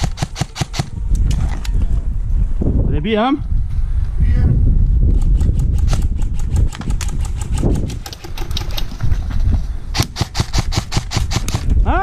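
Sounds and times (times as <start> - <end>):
airsoft guns firing: 0.0 - 1.0, 10.0 - 11.7
low microphone rumble: 0.8 - 10.1.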